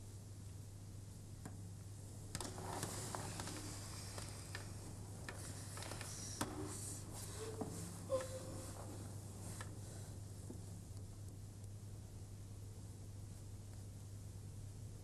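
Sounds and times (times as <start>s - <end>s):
steady low hum: 0.0s - 15.0s
faint clicks and crackles: 2.3s - 7.6s
brief squeaks: 7.3s - 8.8s.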